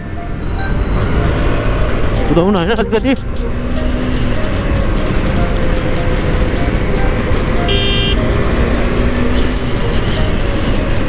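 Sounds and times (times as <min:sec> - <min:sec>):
road and wind noise: 0:00.0 - 0:11.0
motorcycle engine running: 0:00.5 - 0:11.0
horn toot: 0:07.6 - 0:08.3.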